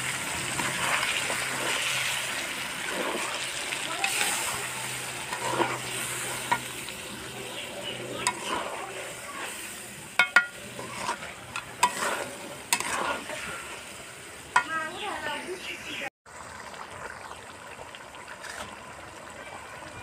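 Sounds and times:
meat sizzling: 0.0 - 15.5
metal spatula scraping pan: 2.8 - 14.8
spatula clinking against pan: 10.2 - 12.0.

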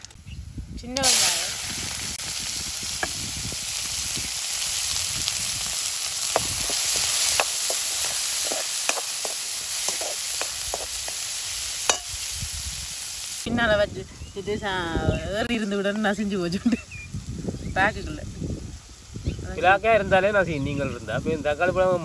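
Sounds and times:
oil popping and crackling: 0.8 - 13.5
shallots sizzling in hot oil: 0.8 - 13.5, 16.3 - 22.0
wooden spoon stirring in wok: 4.5 - 12.1.

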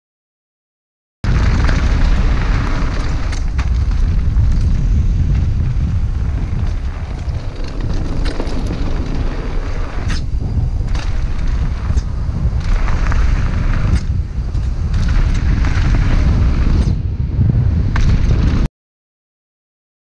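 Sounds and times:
tyres crunching over gravel: 1.3 - 16.8
bike rattling: 1.3 - 18.7
wind buffeting microphone: 1.3 - 18.7.

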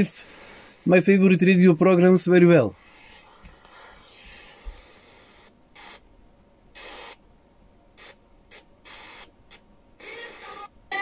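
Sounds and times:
radio static hiss: 0.0 - 6.1, 6.7 - 7.2, 8.0 - 11.0.

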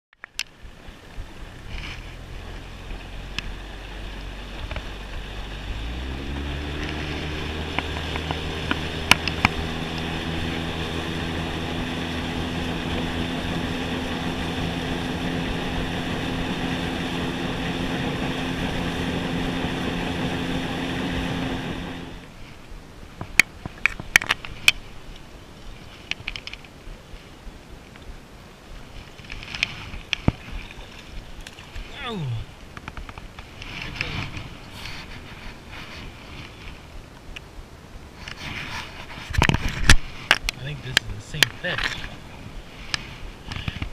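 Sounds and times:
wind and water rushing: 0.2 - 43.9
outboard motor running: 0.6 - 22.4.

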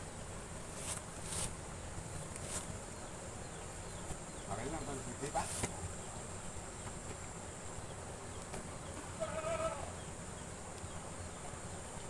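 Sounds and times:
outdoor background hiss: 0.0 - 12.0
animal bleat: 9.2 - 10.0.

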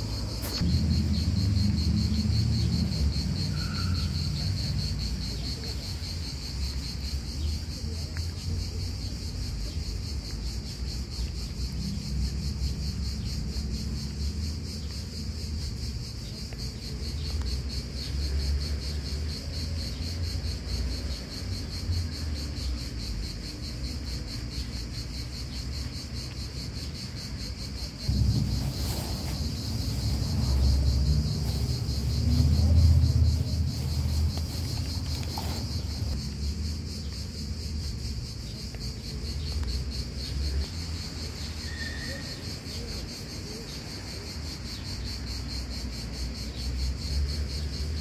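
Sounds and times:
low rumble: 0.0 - 3.5, 28.1 - 36.5
high-pitched insect trill: 0.0 - 48.0
low bump: 28.1 - 36.2.

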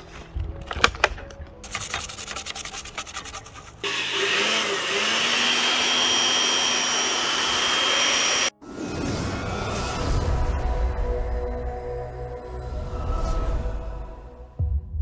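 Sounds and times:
scratchy strokes: 1.6 - 3.9
electric blower whining: 3.8 - 8.5.

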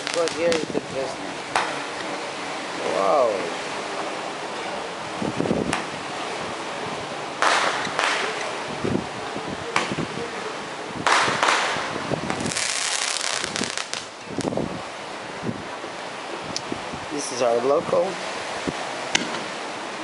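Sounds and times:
firework bangs: 0.0 - 0.8, 7.4 - 8.4, 11.0 - 14.5
fireworks crackling: 0.0 - 1.1, 7.4 - 8.6, 11.0 - 14.6.

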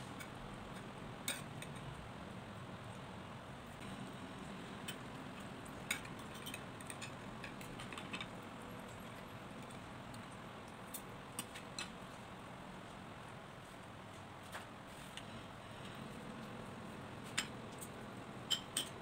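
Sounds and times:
utensils clinking on ceramic bowl: 5.8 - 8.3, 18.5 - 19.0.

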